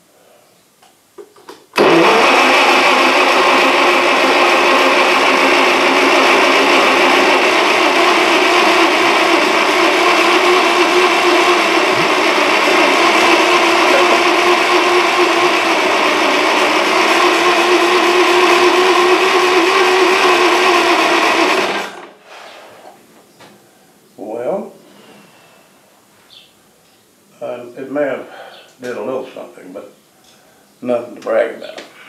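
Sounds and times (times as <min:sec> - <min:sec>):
engine starter whirring: 0:01.8 - 0:22.2.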